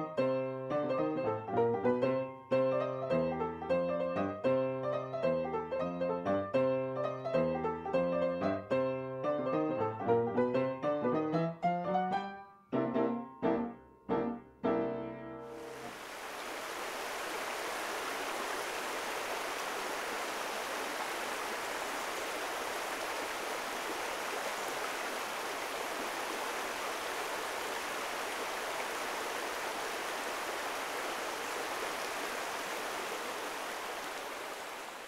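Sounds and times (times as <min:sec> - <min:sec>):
river running over gravel: 0:15.6 - 0:35.0.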